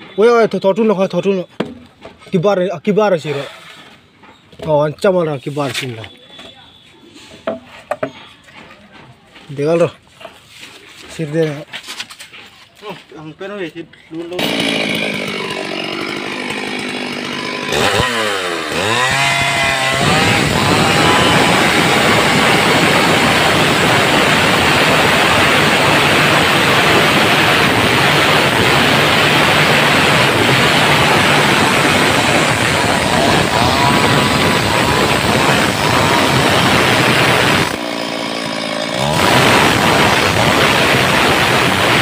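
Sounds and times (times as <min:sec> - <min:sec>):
chainsaw revving and cutting wood: 0:14.2 - 0:42.0.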